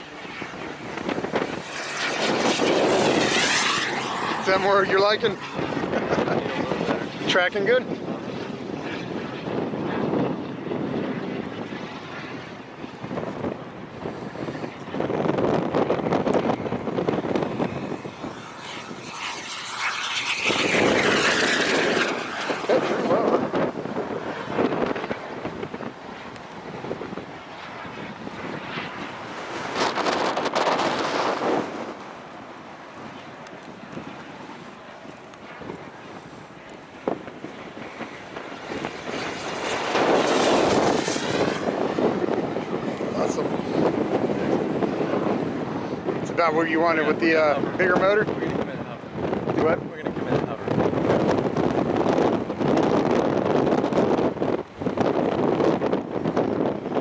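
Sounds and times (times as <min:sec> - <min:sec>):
model airplane motor: 0:00.0 - 0:32.4
wind buffeting microphone: 0:00.0 - 0:57.0.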